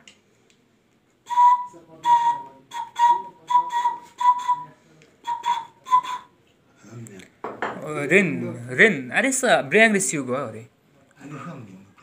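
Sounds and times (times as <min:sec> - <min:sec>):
breathy whistle-like wind instrument: 0:01.3 - 0:06.3.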